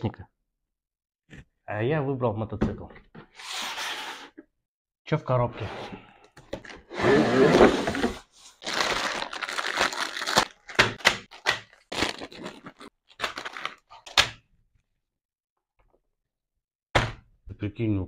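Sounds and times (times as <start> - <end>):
cardboard box scraping open: 6.8 - 9.0
plastic bags rustling: 7.6 - 14.0.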